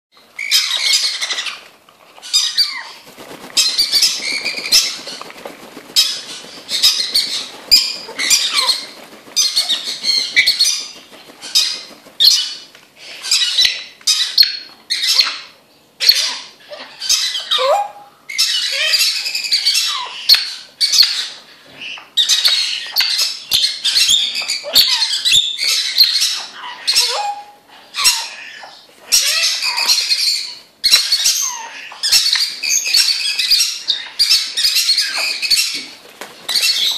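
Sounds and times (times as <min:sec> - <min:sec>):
parrots squawking: 0:02.2 - 0:12.6, 0:23.9 - 0:35.8
wings flapping: 0:02.8 - 0:12.8, 0:35.0 - 0:36.9.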